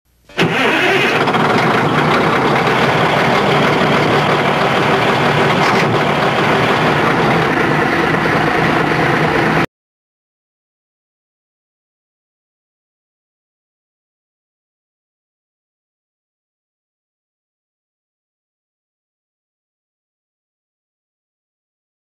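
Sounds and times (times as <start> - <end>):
heavy machine engine running: 0.3 - 9.7.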